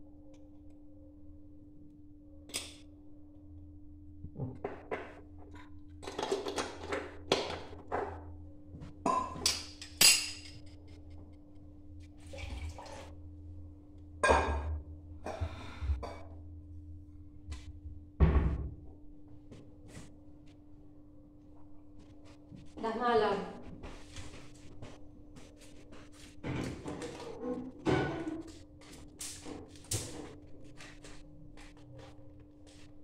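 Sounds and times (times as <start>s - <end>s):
steady low hum: 7.2s - 26.9s
dishes clinking and clattering: 26.5s - 28.5s.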